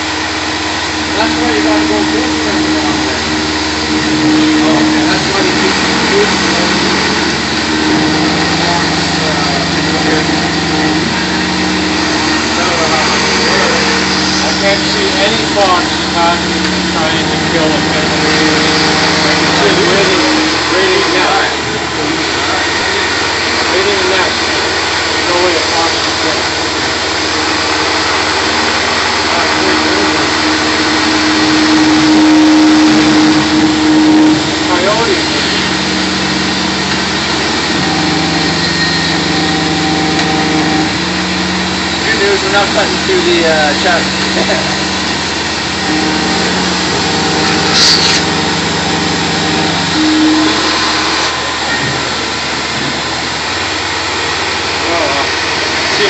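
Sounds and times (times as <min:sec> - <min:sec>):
mill spindle whine: 0:00.0 - 0:56.0
shop vacuum running: 0:00.0 - 0:56.0.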